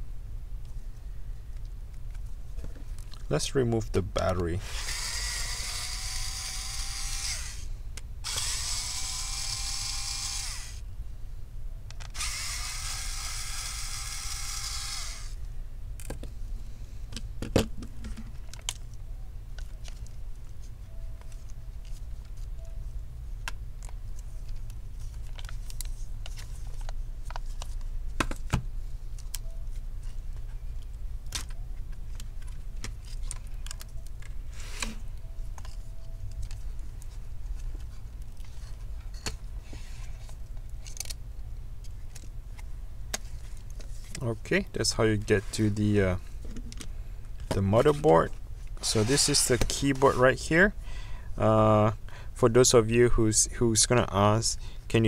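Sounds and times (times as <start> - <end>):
electric screwdriver whirring: 4.6 - 10.8, 12.1 - 15.4.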